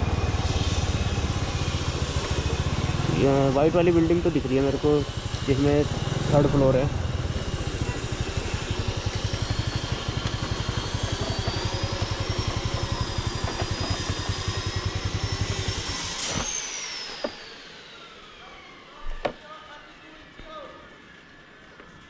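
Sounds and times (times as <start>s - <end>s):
scooter engine putter: 7.8s - 15.4s.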